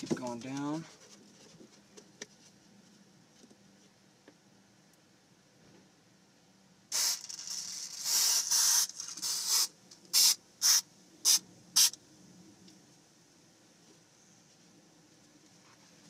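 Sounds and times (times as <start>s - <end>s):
aerosol spray hissing: 6.9s - 12.0s.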